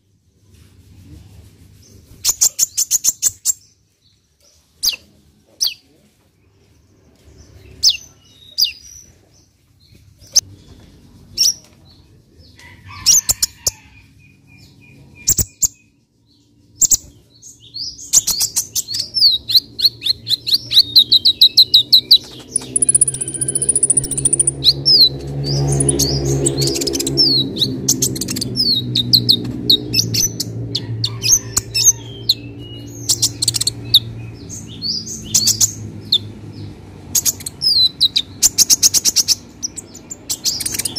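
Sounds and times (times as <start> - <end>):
sunbird high chirps: 14.0 - 40.9
low drone: 19.0 - 37.2.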